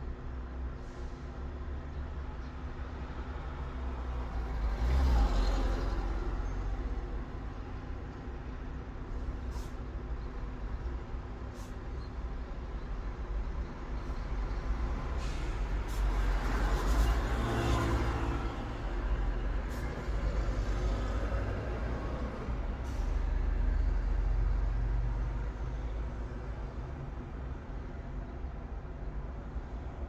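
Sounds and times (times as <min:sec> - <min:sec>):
passing vehicles hiss: 0:09.2 - 0:10.8, 0:11.4 - 0:12.0, 0:13.8 - 0:28.2.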